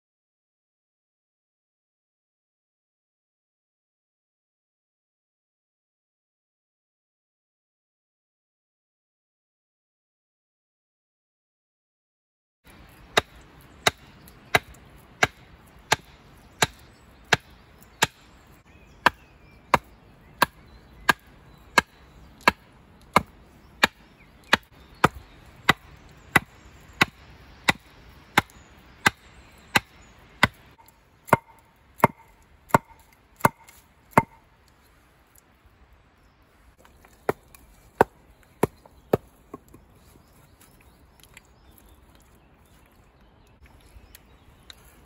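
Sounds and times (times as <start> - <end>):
wood being chopped: 12.7 - 18.3, 19.0 - 34.4, 36.8 - 39.8.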